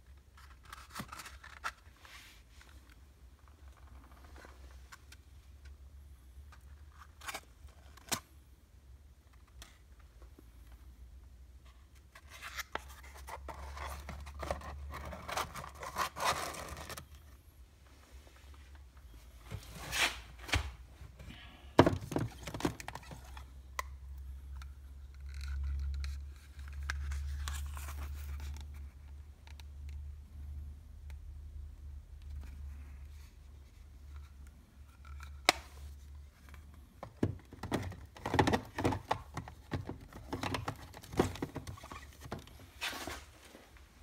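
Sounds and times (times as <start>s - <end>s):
cardboard boxes scraping and rustling: 40.3s - 43.7s.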